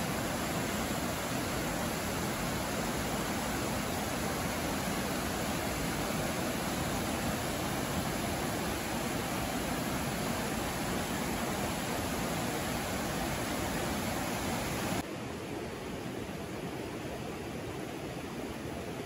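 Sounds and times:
stream rushing over rocks: 0.0 - 19.0.

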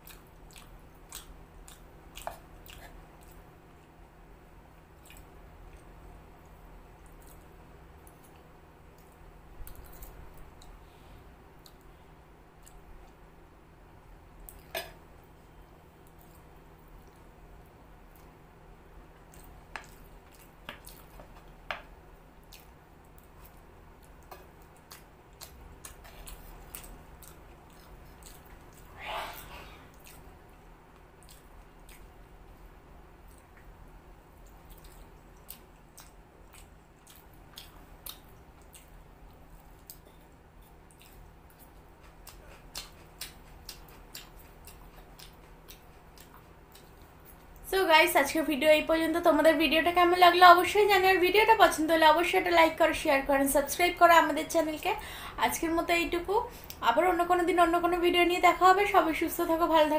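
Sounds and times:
chewing noodles: 0.0 - 4.0, 22.4 - 32.2, 34.4 - 47.6.

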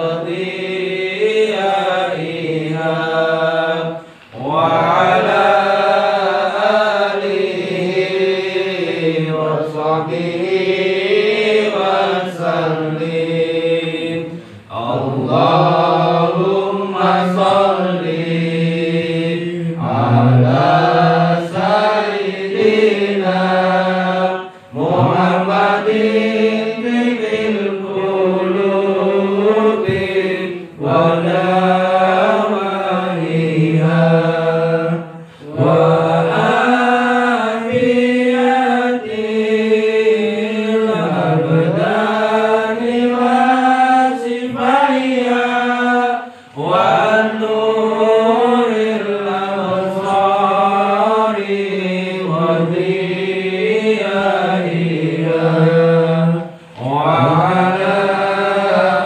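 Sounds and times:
person chanting melodically: 0.0 - 59.0.

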